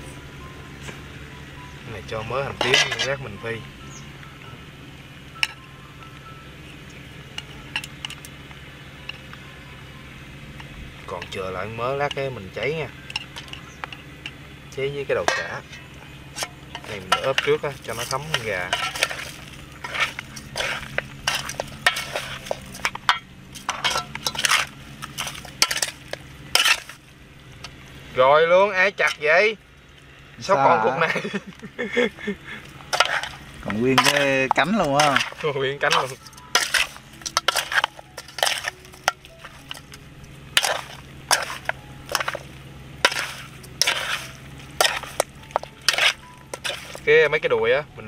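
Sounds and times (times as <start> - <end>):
spoon scraping metal bowl: 16.3 - 27.0, 32.8 - 47.1.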